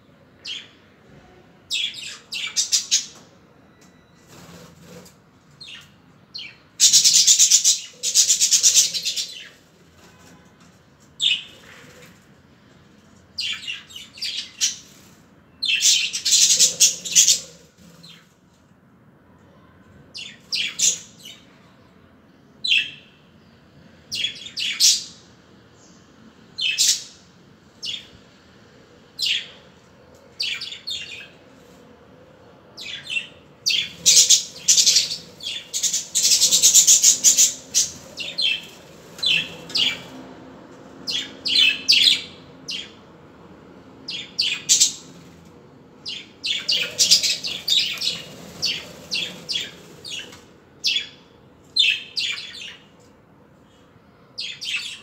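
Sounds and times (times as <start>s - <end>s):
budgerigars chirping and chattering: 6.4s - 9.5s, 15.7s - 18.2s, 32.8s - 40.1s, 44.1s - 45.1s, 46.1s - 51.2s.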